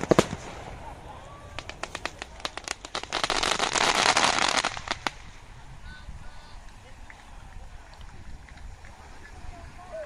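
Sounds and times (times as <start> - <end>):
fireworks crackling: 0.0 - 6.9.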